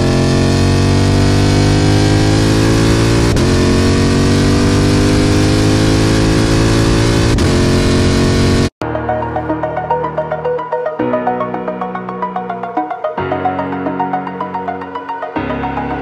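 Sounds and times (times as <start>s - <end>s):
car engine accelerating through gears: 0.0s - 8.7s.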